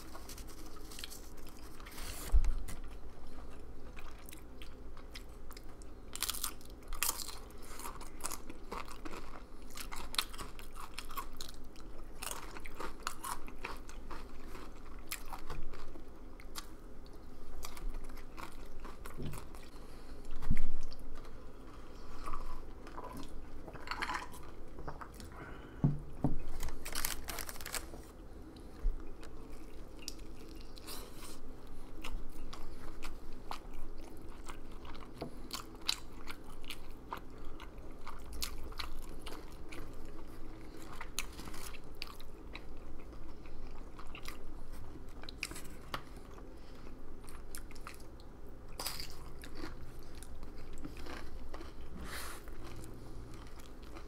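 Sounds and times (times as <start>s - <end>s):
soft chewing: 0.0s - 54.0s
crunching tortilla chips: 5.6s - 16.7s, 26.5s - 28.1s, 48.7s - 54.0s.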